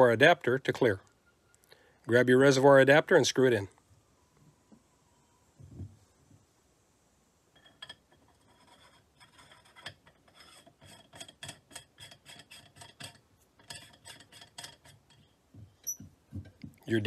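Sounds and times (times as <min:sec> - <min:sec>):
threads rasping while screwing: 0:08.1 - 0:16.8.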